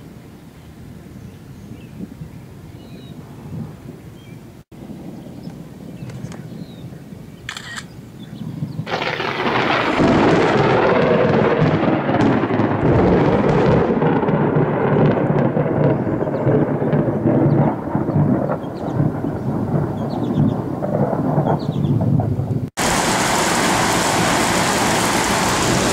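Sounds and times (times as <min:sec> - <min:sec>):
thunderclap rumbling: 0:08.3 - 0:25.9.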